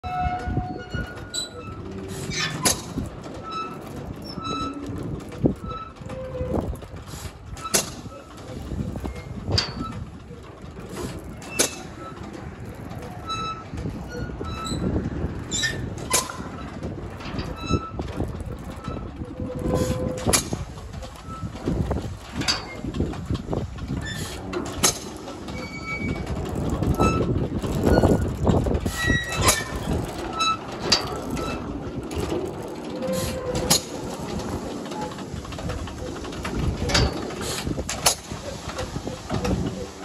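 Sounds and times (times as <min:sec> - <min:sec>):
mechanical rumble: 0:00.0 - 0:40.0
wheel squeaking: 0:00.0 - 0:40.0
engine firing with sharp bangs: 0:24.6 - 0:25.4.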